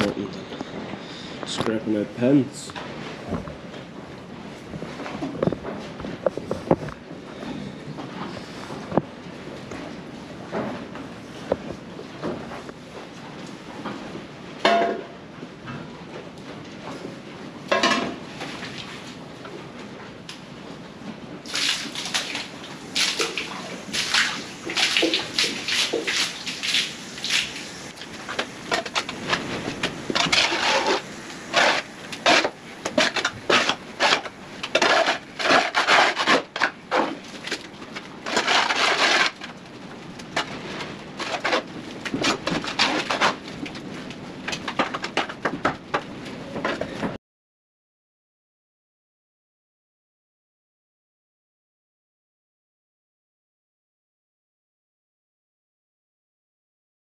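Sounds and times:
scraper on concrete floor: 30.2s - 36.6s.

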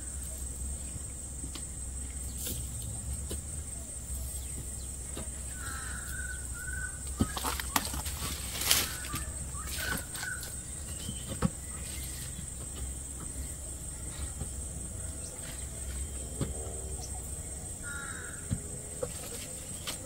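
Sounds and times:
insect drone: 0.0s - 20.0s
bird chirps: 3.8s - 18.4s
faint bird call: 5.5s - 12.4s
plastic bag rustling: 7.2s - 10.6s.

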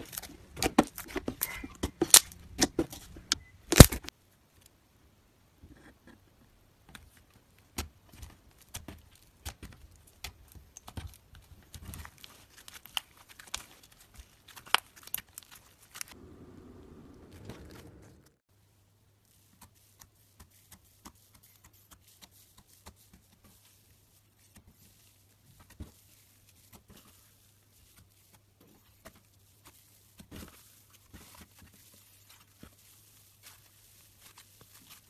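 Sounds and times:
slime crackling and popping: 0.0s - 2.8s, 3.7s - 4.1s, 8.1s - 16.2s.

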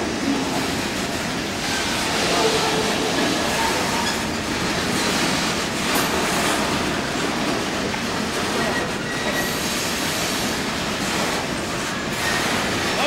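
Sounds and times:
freight train rumbling past: 0.0s - 13.0s
wheel squeal: 3.4s - 4.4s, 8.6s - 9.7s.

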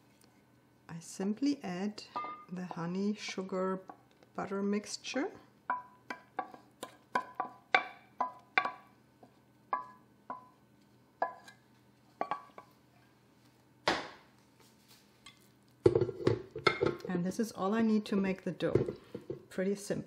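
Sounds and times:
wooden spoon knocking on saucepan: 5.7s - 10.6s, 12.2s - 12.7s, 15.8s - 17.0s, 18.7s - 19.4s.

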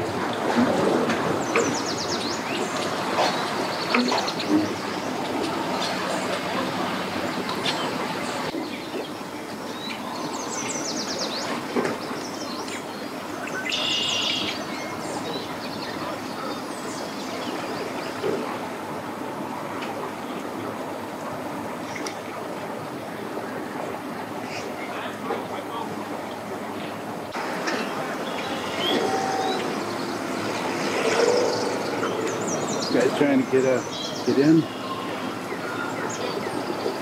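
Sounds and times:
small birds chirping: 27.8s - 37.0s.

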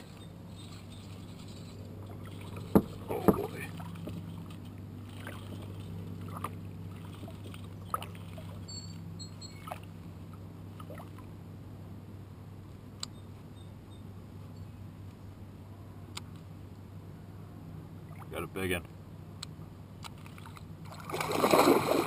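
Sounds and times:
light clicks and knocks of gear: 0.0s - 9.1s.

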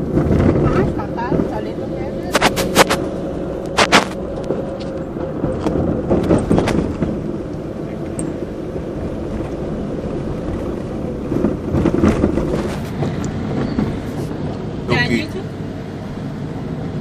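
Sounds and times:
car engine and road noise: 0.0s - 17.0s
camera rubbing against clothing: 2.2s - 4.2s.

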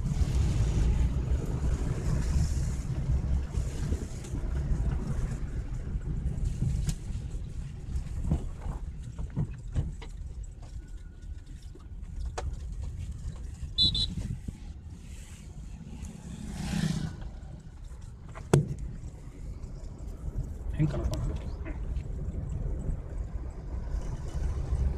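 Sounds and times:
car engine and road rumble: 0.0s - 24.9s.

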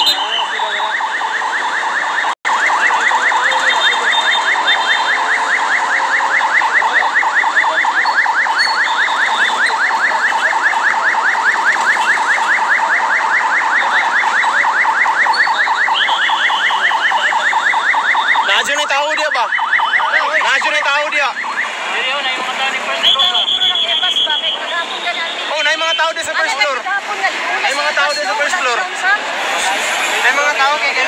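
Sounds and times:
electronic alarm pitch sweep: 0.0s - 24.6s.

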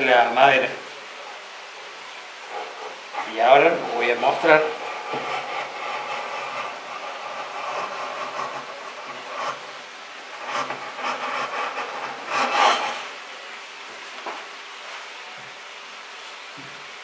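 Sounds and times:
hand plane shaving wood: 2.5s - 13.1s.

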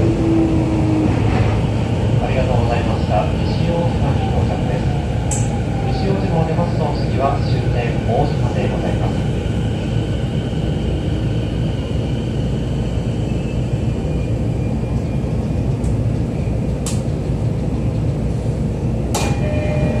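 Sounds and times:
subway train wheels rumbling on rail: 0.0s - 20.0s
sharp clicks: 16.8s - 17.1s.

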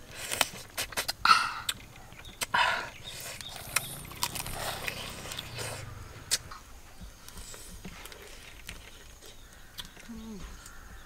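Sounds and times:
crab being chewed and sucked: 0.0s - 6.5s
crab shell crunching: 0.3s - 6.5s.

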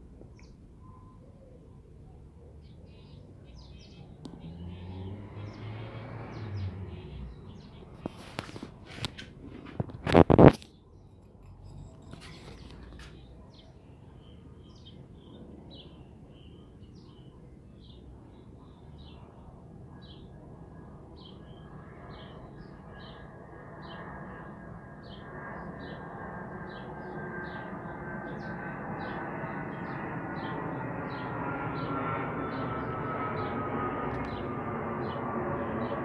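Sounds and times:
small bird chirping: 10.0s - 15.4s.

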